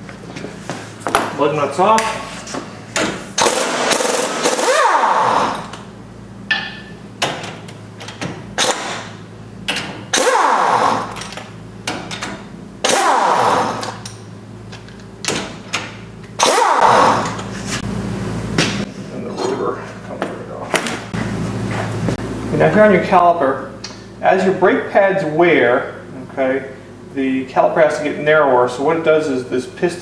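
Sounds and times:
steady low hum: 0:00.0 - 0:30.0
pneumatic impact wrench bursts: 0:03.3 - 0:05.8, 0:08.6 - 0:09.2, 0:10.1 - 0:11.3, 0:12.8 - 0:14.0, 0:16.4 - 0:17.8.

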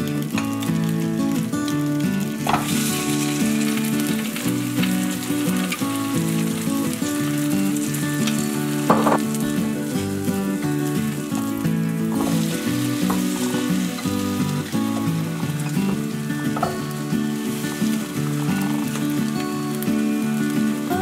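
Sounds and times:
bread sizzling in a pan: 0:00.0 - 0:21.0
soft background music: 0:00.0 - 0:21.0.

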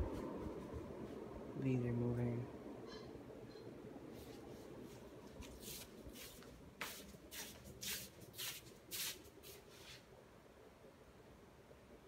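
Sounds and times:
faint low hum: 0:00.0 - 0:08.3.

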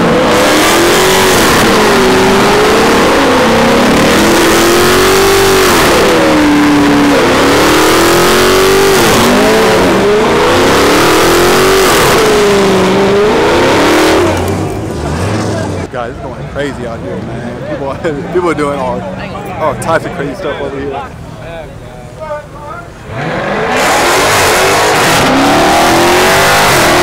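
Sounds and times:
car engine revving hard: 0:00.0 - 0:15.9, 0:23.0 - 0:27.0.

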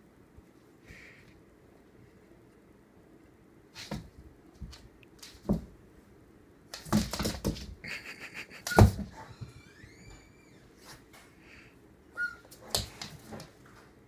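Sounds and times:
dog claws scrabbling on floor: 0:03.8 - 0:05.8, 0:06.7 - 0:07.8
dog thumping on floor: 0:03.8 - 0:05.8, 0:06.7 - 0:07.8, 0:08.7 - 0:09.6.

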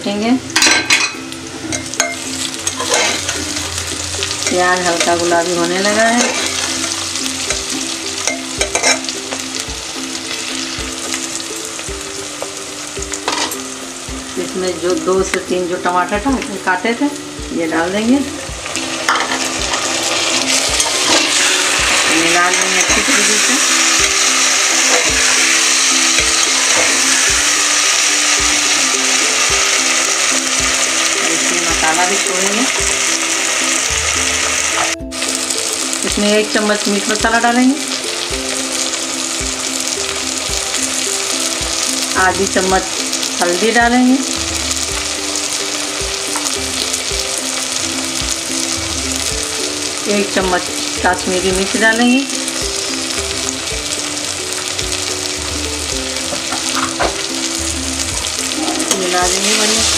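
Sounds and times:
onions sizzling in hot oil: 0:00.0 - 0:59.9
metal spatula scraping a pot: 0:01.7 - 0:03.5, 0:06.0 - 0:07.0, 0:19.0 - 0:27.3.

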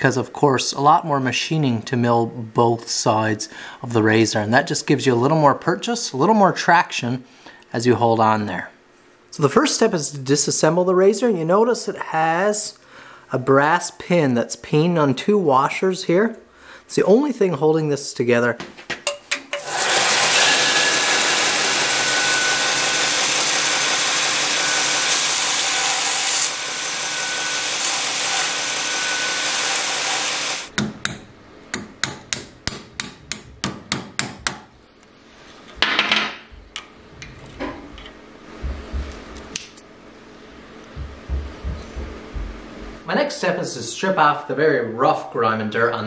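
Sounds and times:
belt grinder grinding: 0:19.5 - 0:30.7.

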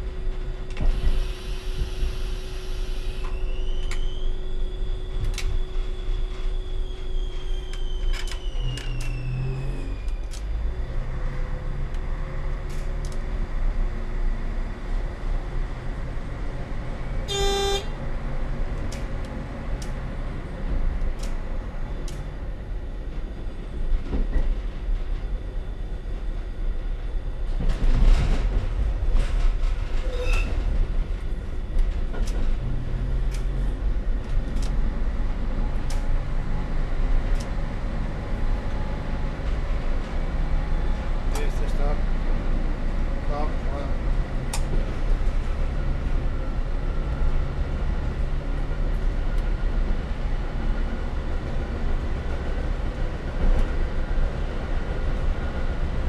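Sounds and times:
diesel railcar drone: 0:00.0 - 0:56.0
short high-pitched tone: 0:17.3 - 0:17.9.

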